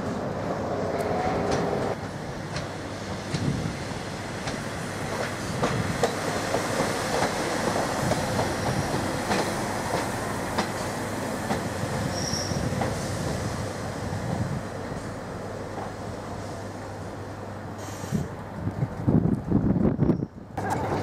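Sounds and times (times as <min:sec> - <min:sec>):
train wheels clattering over rail joints: 0:04.4 - 0:13.0
high wheel squeal: 0:12.1 - 0:12.7.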